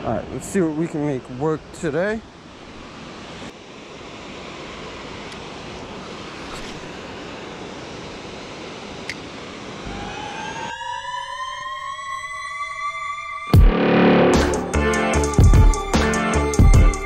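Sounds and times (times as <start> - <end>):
rush of wind and water: 0.0 - 11.2
rising whistle-like transition effect: 9.9 - 16.0
music: 12.3 - 17.0
loud hit: 13.6 - 16.0.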